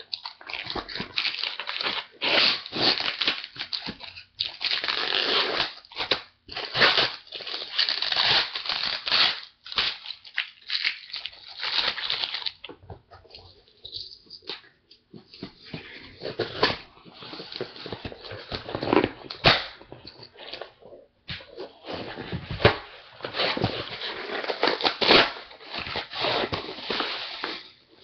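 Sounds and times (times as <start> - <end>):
packing paper crinkling and tearing: 0.0 - 12.7, 21.4 - 27.8.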